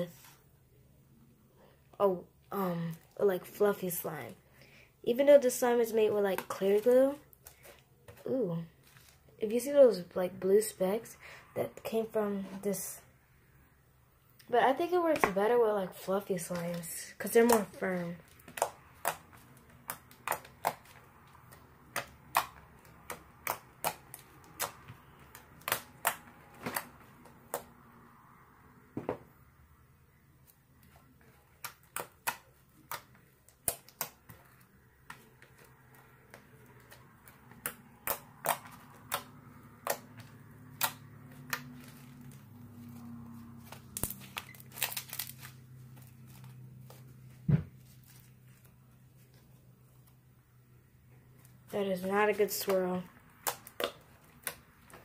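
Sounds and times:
plastic sheet and slime crackling: 5.4s - 9.7s, 14.5s - 27.7s, 30.4s - 50.3s, 51.3s - 55.0s.

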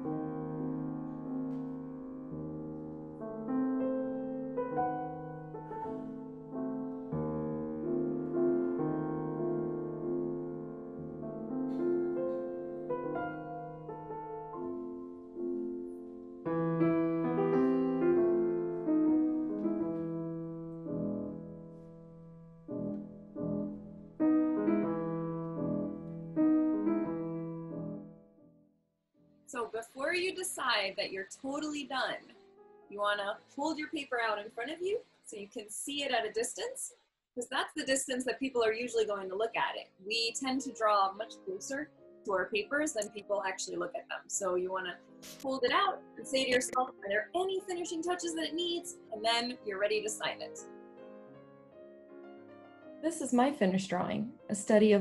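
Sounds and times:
gentle solo piano: 0.0s - 28.2s.

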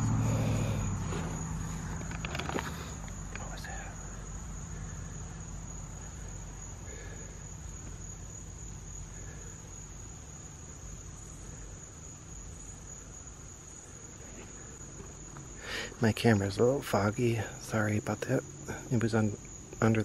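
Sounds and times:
faint low rumble: 0.0s - 15.6s
crickets and insects chorus: 0.0s - 20.0s.

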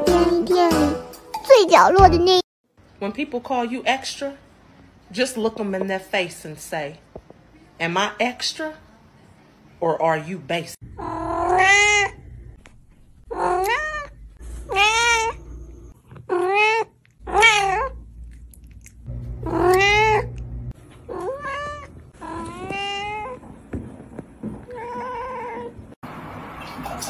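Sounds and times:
cat meowing: 11.0s - 12.2s, 13.3s - 15.4s, 16.3s - 18.0s, 19.4s - 20.4s, 21.1s - 23.4s.

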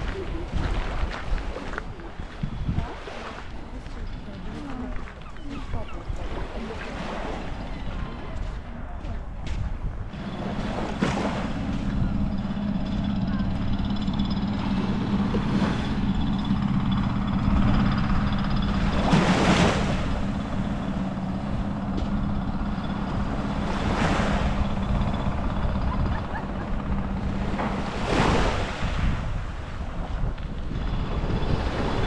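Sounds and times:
sea waves breaking on beach: 0.0s - 32.0s
wind on microphone: 0.0s - 32.0s
steady low hum: 6.2s - 32.0s.

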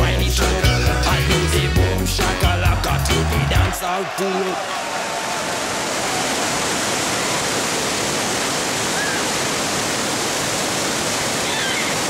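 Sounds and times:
waterfall rushing: 3.8s - 12.0s.

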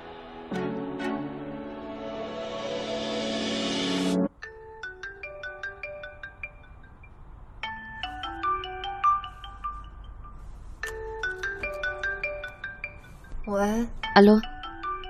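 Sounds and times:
phone ringtone: 4.2s - 15.0s.

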